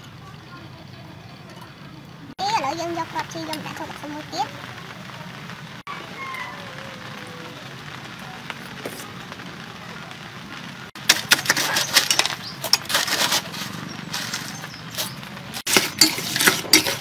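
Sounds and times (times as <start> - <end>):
ice crunching and clinking: 11.0 - 17.0
metal ladle stirring in steel bowl: 11.0 - 17.0.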